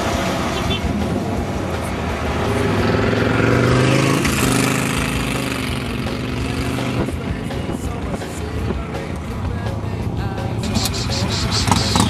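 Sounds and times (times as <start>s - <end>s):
motorcycle passing at speed: 2.4s - 7.0s, 11.0s - 12.0s.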